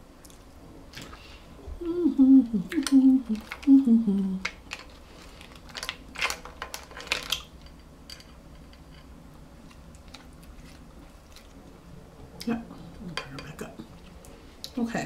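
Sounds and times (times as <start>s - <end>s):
person humming: 1.8s - 4.5s
crab shells clicking and crackling: 2.8s - 3.7s, 4.4s - 10.5s.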